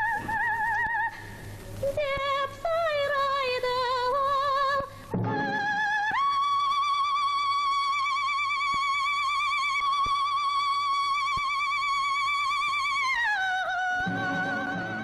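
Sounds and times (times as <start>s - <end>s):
orchestral accompaniment: 14.1s - 15.0s.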